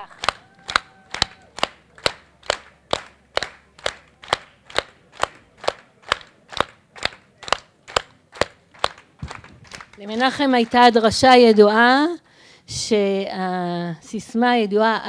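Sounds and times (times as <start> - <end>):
hands clapping: 0.0 - 10.9.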